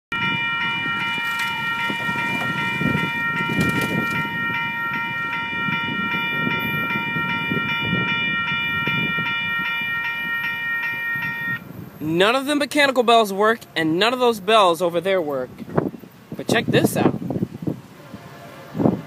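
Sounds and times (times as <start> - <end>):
electronic crossing bell ringing: 0.1 - 11.8.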